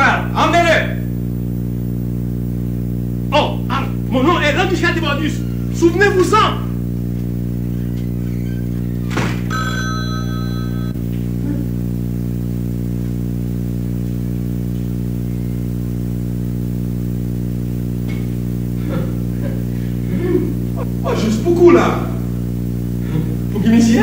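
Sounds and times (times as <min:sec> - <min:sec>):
low electrical buzz: 0:00.0 - 0:24.0
brief high ringing tones: 0:09.4 - 0:11.0.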